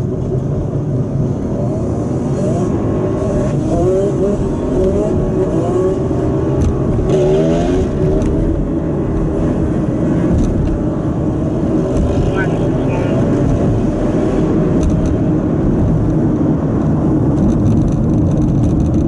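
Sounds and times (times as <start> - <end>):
car road rumble: 0.0 - 19.0
dirt bike and atv engines revving: 2.3 - 8.6, 11.8 - 13.4.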